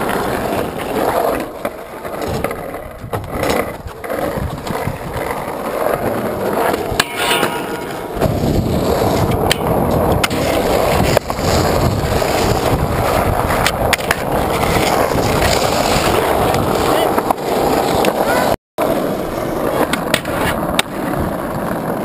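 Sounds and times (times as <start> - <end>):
skateboard wheels rolling on asphalt: 0.0 - 22.0
skateboard clacking on metal rail: 6.7 - 10.4.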